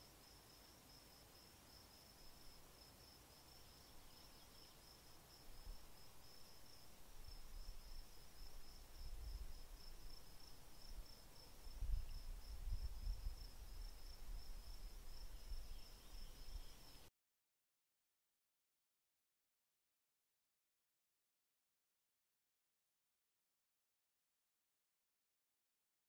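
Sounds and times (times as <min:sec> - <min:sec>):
crickets chirping: 0:00.0 - 0:17.1.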